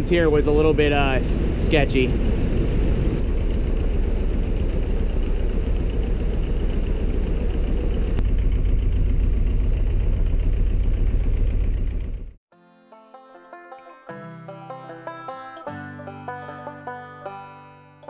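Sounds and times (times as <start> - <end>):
diesel boat engine rumbling: 0.0 - 12.4.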